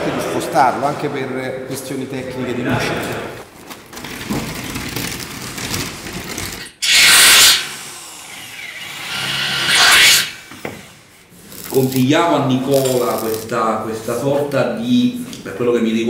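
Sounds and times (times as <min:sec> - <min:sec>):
power tool on metal: 0:06.8 - 0:10.5.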